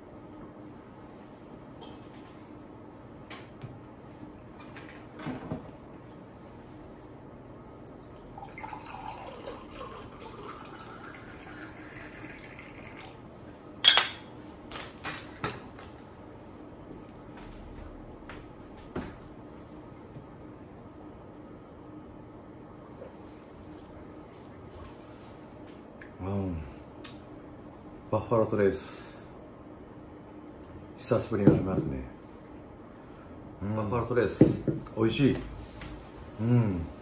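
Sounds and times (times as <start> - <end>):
water pouring into a glass: 8.0 - 13.2.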